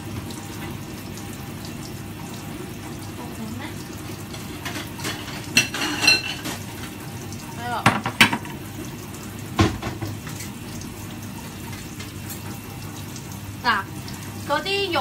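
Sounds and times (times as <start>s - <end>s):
ceramic dishes clattering: 4.6s - 6.6s.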